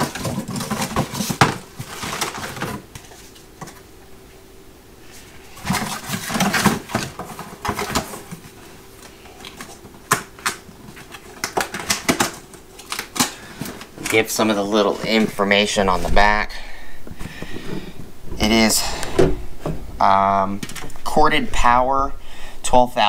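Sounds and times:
cardboard packaging rustling and knocking: 0:00.0 - 0:03.8, 0:05.6 - 0:08.6
faint steady hum: 0:00.0 - 0:23.0.

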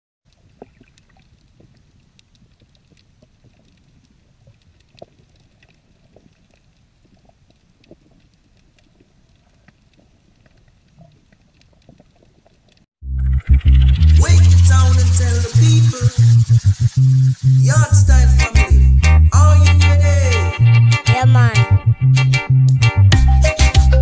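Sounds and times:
faint clicks and ticks: 0:00.3 - 0:12.9.

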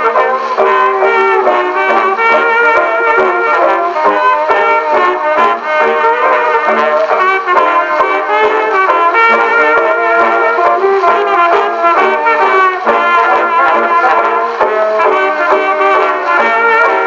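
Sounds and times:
brass-led jazz band on phonograph: 0:00.0 - 0:17.0.

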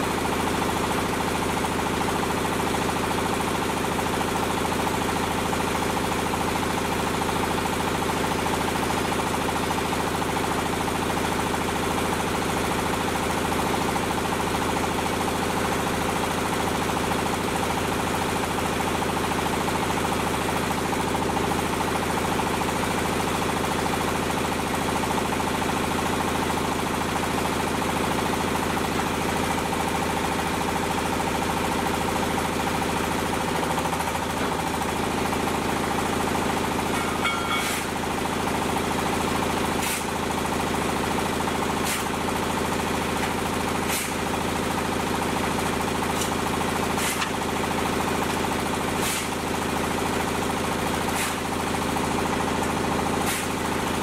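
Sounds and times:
diesel engine running: 0:00.0 - 0:54.0
sharp machine knocks: 0:37.0 - 0:37.9.

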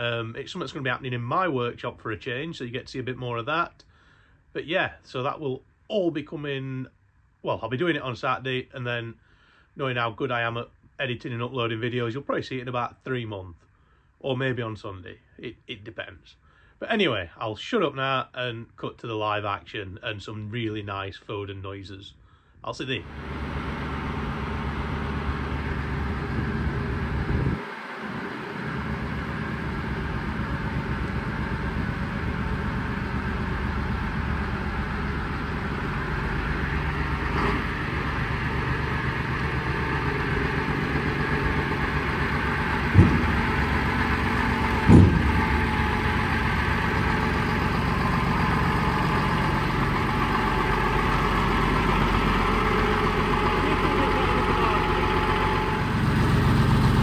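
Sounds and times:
truck diesel engine at low revs: 0:00.0 - 0:10.5, 0:23.0 - 0:57.0
short sharp clunks: 0:42.9 - 0:43.7, 0:44.7 - 0:45.6.

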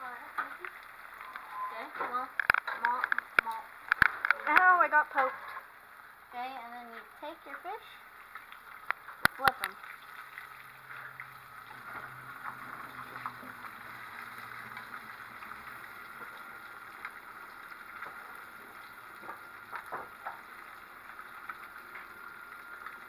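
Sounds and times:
fish sizzling in hot oil: 0:00.0 - 0:23.0.

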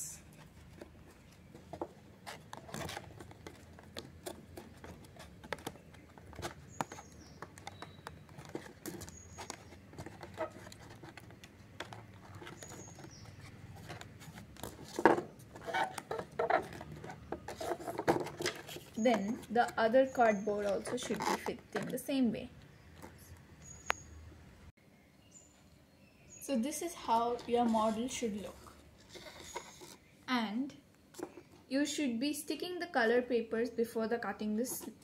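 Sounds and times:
cardboard scratching and rubbing: 0:00.3 - 0:22.0, 0:27.2 - 0:30.0.

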